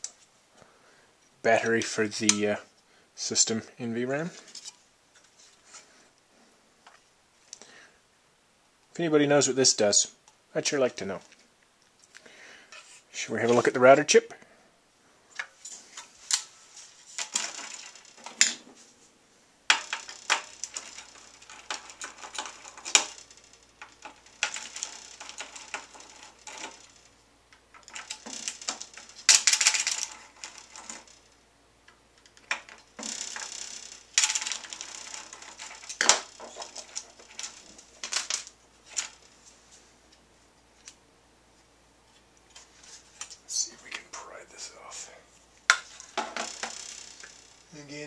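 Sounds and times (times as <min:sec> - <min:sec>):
screwdriver turning screws: 0:19.7 - 0:27.0.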